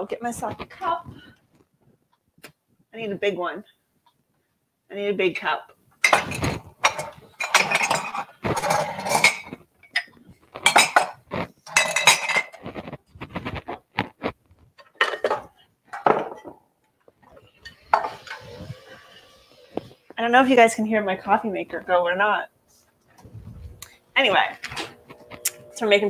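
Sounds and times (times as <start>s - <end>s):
ceramic mugs and dishes clinking: 6.0s - 12.6s, 14.8s - 16.6s, 17.6s - 18.6s
coffee maker running: 17.6s - 19.9s, 24.8s - 26.0s.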